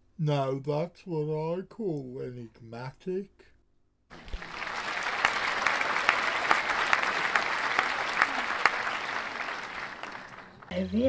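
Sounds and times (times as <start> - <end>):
small group applauding: 4.1 - 10.7.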